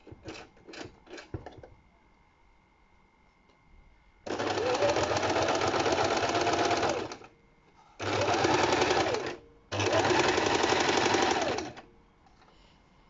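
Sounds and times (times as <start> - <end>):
electric sewing machine stitching: 4.3 - 7.3, 8.0 - 11.8.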